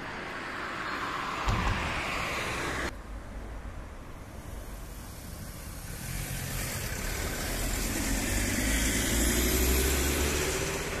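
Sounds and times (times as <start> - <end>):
vehicle engine pulling away: 4.5 - 11.0.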